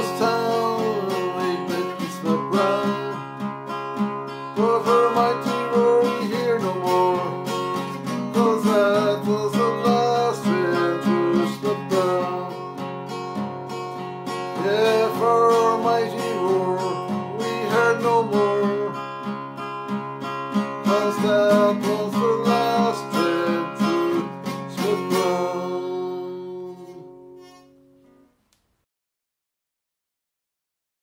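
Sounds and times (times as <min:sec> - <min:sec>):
man singing: 0:00.0 - 0:03.4, 0:04.4 - 0:12.8, 0:14.4 - 0:19.2, 0:20.6 - 0:27.3
strummed acoustic guitar: 0:00.0 - 0:28.4.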